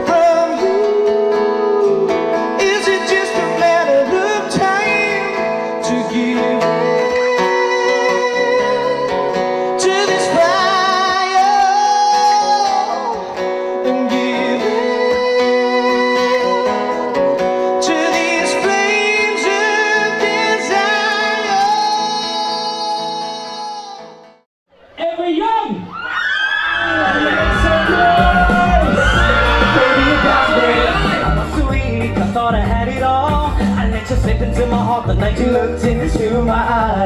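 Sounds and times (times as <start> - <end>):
man singing: 0.0 - 24.2, 26.9 - 37.0
acoustic guitar strumming: 27.1 - 37.0.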